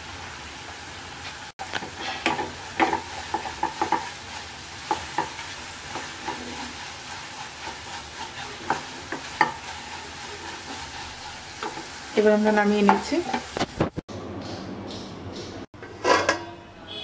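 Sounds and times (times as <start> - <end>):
wooden spatula scraping a pan: 1.2 - 13.8.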